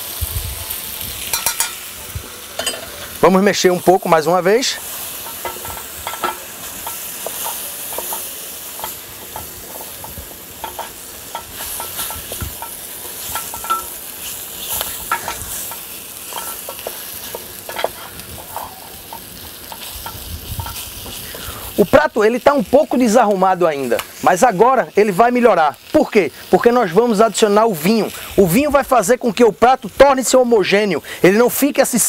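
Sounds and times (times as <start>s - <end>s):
meat sizzling: 0.0s - 32.0s
wooden spoon scraping a pot: 5.2s - 21.2s.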